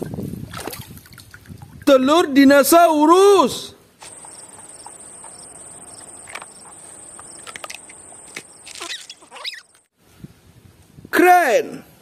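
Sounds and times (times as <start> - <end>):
high insect buzz: 4.0 - 9.9
squeaky chirps: 4.0 - 9.9.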